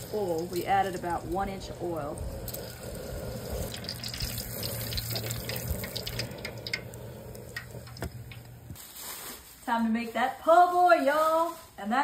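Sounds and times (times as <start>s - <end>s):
fish deep-frying in oil: 0.0s - 8.8s
low steady hum: 0.0s - 8.8s
oil popping and crackling: 0.0s - 8.8s.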